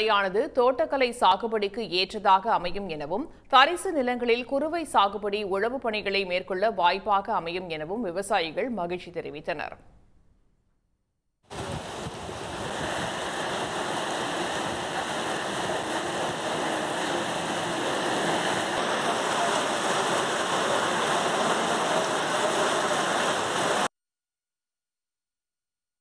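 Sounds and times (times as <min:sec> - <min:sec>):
heavy rain pouring: 0:11.5 - 0:23.9.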